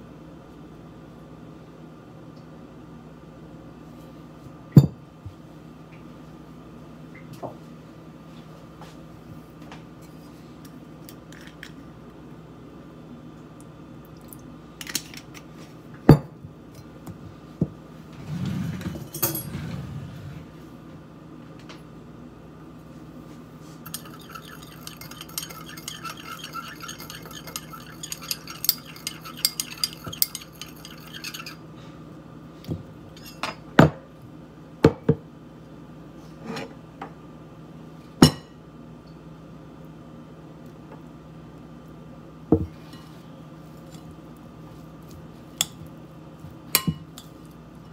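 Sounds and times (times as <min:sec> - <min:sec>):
spoon clinking in glass dish: 0:23.8 - 0:31.6.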